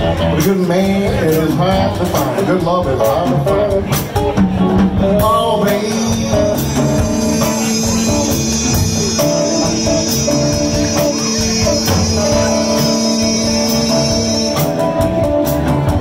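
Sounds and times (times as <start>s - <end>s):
drums and cymbals: 0.0s - 16.0s
electric guitar: 0.0s - 16.0s
upright bass: 0.0s - 16.0s
harmonica long bending notes: 5.0s - 16.0s.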